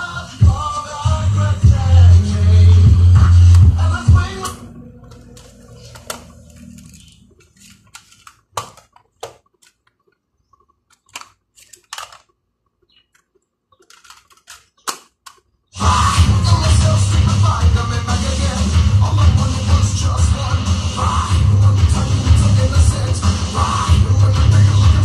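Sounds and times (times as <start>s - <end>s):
music from cassette player: 0.0s - 8.2s, 15.8s - 25.0s
plastic cassette cases clicking: 4.4s - 15.5s.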